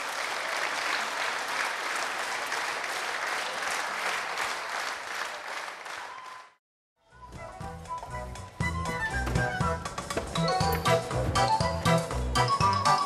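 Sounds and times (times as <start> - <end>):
large audience applauding: 0.0 - 6.6.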